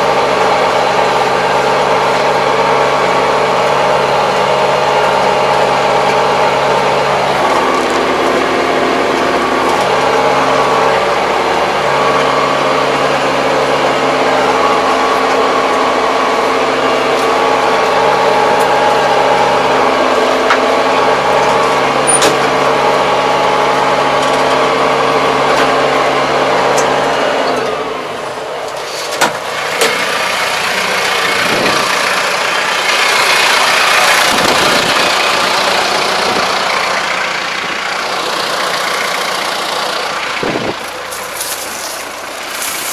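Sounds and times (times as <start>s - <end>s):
tractor diesel engine running: 0.0s - 42.9s
outdoor rustling: 28.4s - 42.9s.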